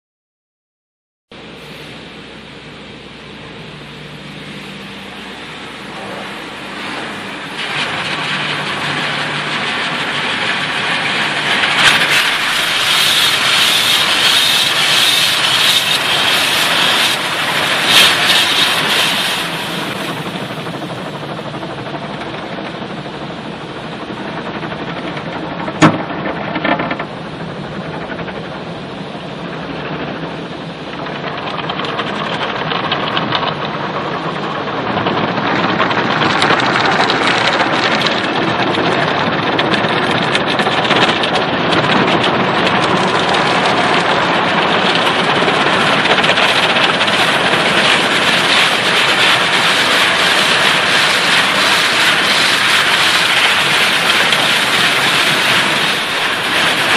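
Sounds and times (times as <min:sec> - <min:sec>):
car wash spraying water: 0:01.4 - 0:56.9
sharp knock: 0:25.8 - 0:26.9.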